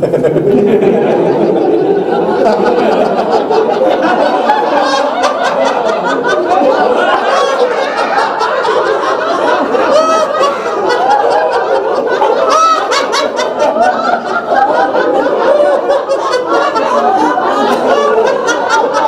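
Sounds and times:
group of people laughing: 0.0s - 19.0s.

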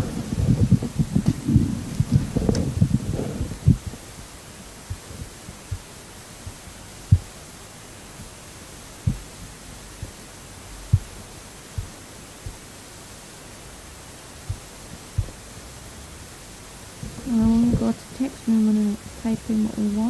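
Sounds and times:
dull low thumps: 0.0s - 7.4s, 8.2s - 12.8s, 14.4s - 15.6s, 16.9s - 18.0s
steady background hiss: 0.0s - 20.0s.

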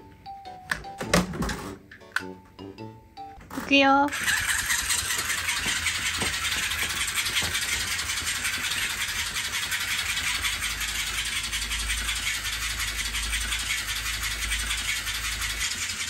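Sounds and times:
toy bird wings whirring: 4.1s - 16.0s.

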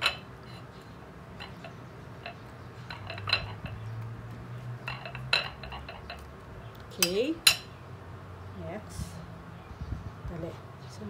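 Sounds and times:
fork clinking and scraping on plate: 0.0s - 0.8s, 1.4s - 3.9s, 4.9s - 6.3s.

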